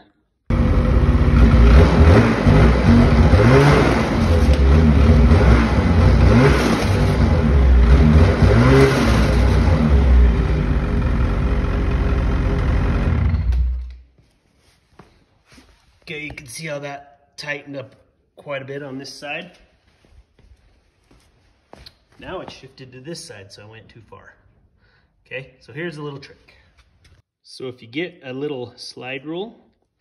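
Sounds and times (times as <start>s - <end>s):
snowmobile engine revving: 0.5s - 13.8s.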